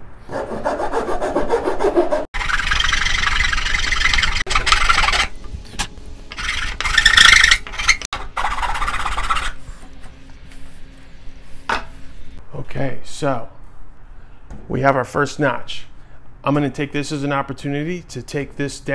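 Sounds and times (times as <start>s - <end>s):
wood rasp scraping wood: 0.3s - 5.3s, 6.3s - 9.6s.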